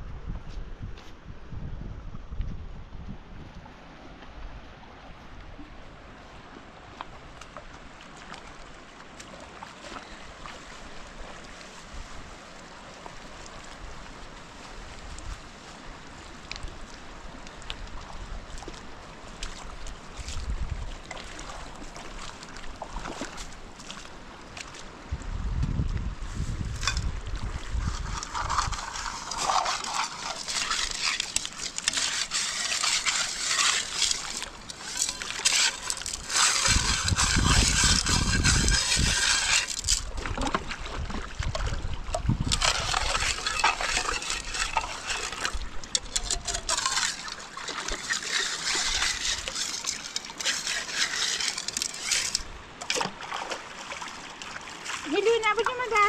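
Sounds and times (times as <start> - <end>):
river water splashing: 3.6 - 25.4, 26.2 - 56.0.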